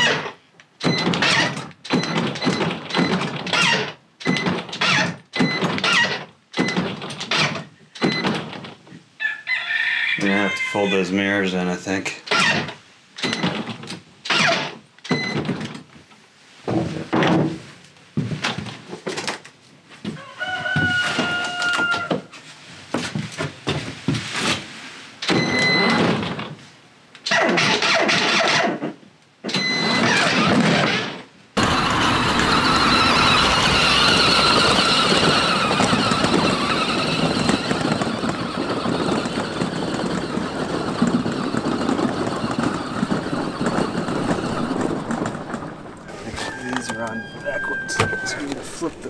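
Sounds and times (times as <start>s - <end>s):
toy truck motors whining: 29.6s - 48.7s.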